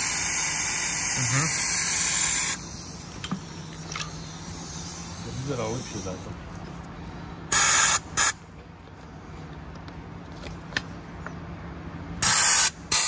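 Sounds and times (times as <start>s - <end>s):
compressed air hissing: 0.0s - 3.2s, 4.1s - 6.3s, 7.5s - 8.4s, 12.2s - 13.0s.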